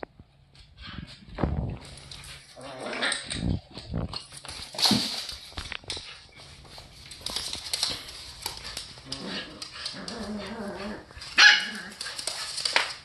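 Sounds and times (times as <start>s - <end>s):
dogs play-fighting vocalizing: 7.3s - 13.0s.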